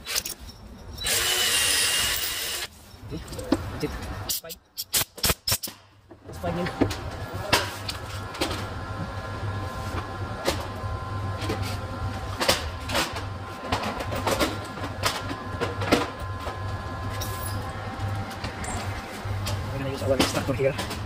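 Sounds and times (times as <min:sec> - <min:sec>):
electric drill running: 0:01.0 - 0:02.7.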